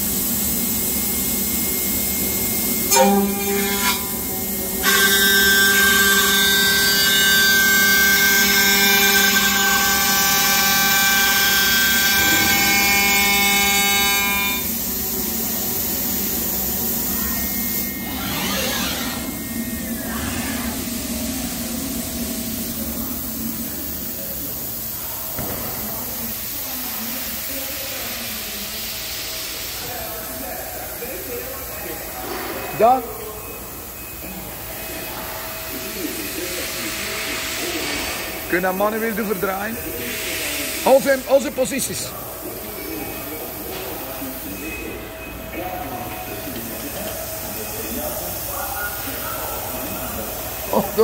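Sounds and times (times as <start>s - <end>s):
machine spindle whining: 0.0s - 24.2s.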